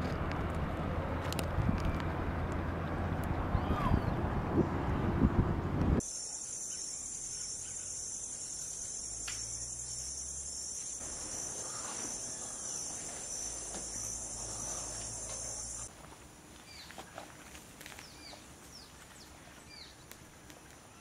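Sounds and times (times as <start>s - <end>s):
high-pitched insect chorus: 6.0s - 15.9s.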